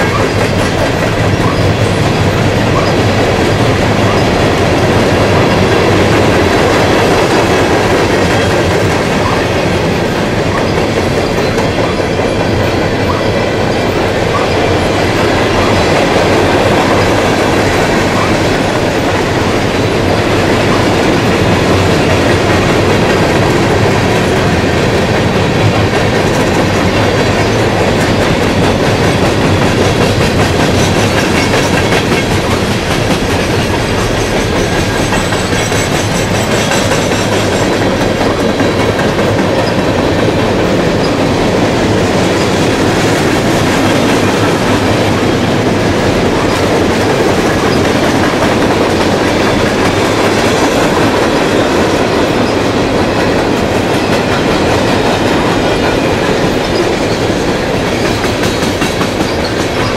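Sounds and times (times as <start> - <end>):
high wheel squeal: 0.0 - 4.4, 9.2 - 16.0, 59.2 - 59.9
train wheels rumbling on rails: 0.0 - 59.9.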